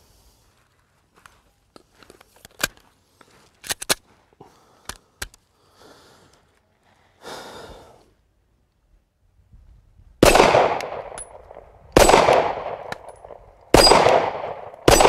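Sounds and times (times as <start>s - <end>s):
pistol metallic clicks: 1.8s - 2.8s, 3.6s - 4.0s, 4.8s - 5.4s, 10.2s - 15.0s.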